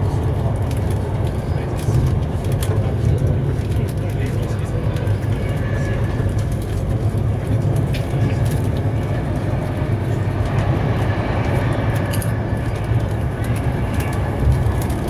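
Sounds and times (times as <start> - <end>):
train wheels rumbling on track: 0.0 - 15.0.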